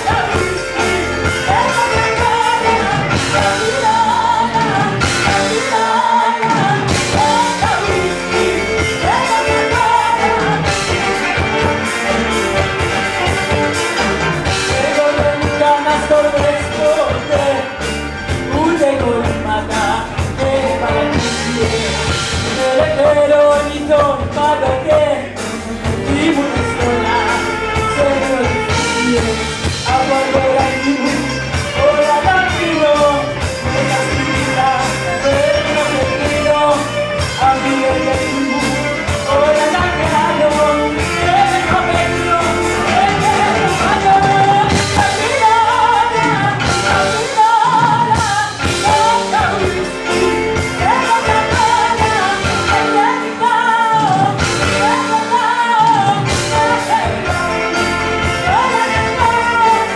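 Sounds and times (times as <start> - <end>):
drum kit beat: 0.0 - 59.9
violin: 0.0 - 59.9
woman singing into a microphone: 26.1 - 59.9.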